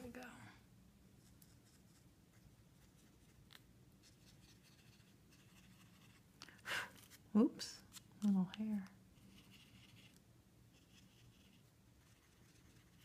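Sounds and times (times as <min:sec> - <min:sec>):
brush pen scratching on card: 0:04.0 - 0:06.2, 0:09.2 - 0:13.0.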